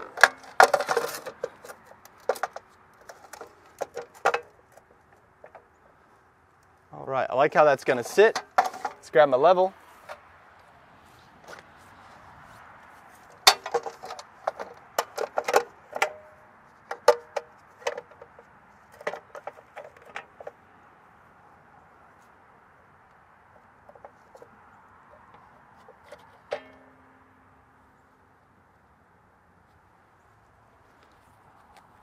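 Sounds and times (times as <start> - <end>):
sheet metal box clanking: 0.0 - 2.6, 7.9 - 9.1, 13.4 - 16.3, 26.5 - 27.1.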